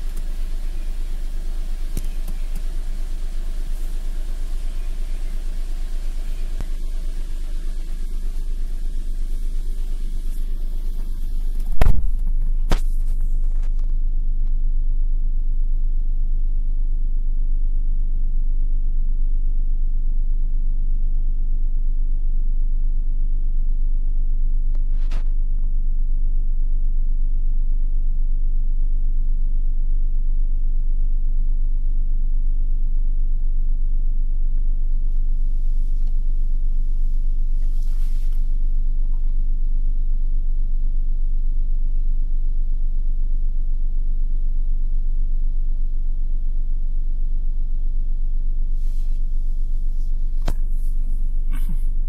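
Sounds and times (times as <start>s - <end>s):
car engine idling: 0.0s - 20.7s, 22.5s - 52.0s.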